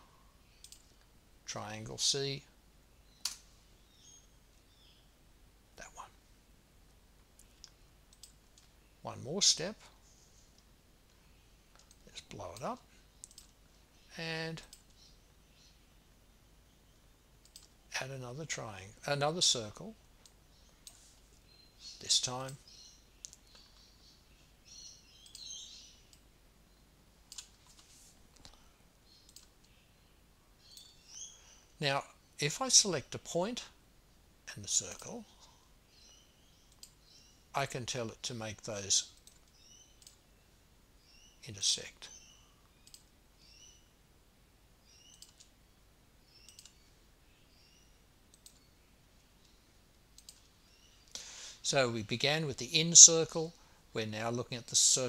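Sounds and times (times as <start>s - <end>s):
computer mouse clicks: 0.6s - 1.1s, 7.4s - 8.7s, 13.2s - 13.6s, 17.4s - 17.8s, 23.2s - 23.8s, 25.2s - 25.5s, 27.3s - 28.6s, 29.2s - 29.8s, 36.7s - 37.0s, 39.2s - 40.2s, 42.8s - 43.1s, 45.1s - 45.5s, 46.4s - 46.8s, 48.3s - 48.7s, 50.2s - 50.5s.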